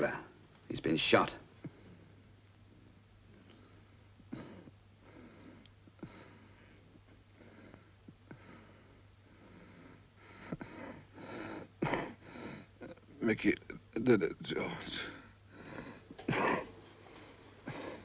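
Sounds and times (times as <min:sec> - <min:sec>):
low steady hum: 0:00.0 - 0:18.0
man breathing strained: 0:03.3 - 0:13.0, 0:15.0 - 0:18.0.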